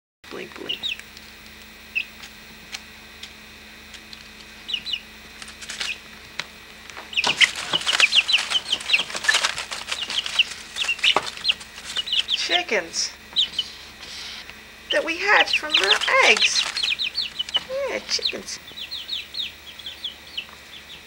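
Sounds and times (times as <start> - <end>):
chicks peeping: 0.4 - 21.0
scuffling and rustling: 5.4 - 6.0, 6.9 - 12.5, 13.5 - 18.6.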